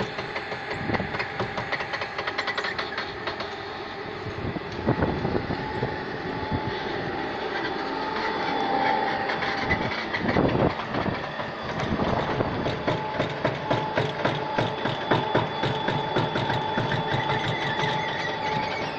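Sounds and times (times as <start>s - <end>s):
machine clattering and knocking: 0.0s - 3.6s, 8.2s - 18.9s
faint machine whine: 0.0s - 18.9s.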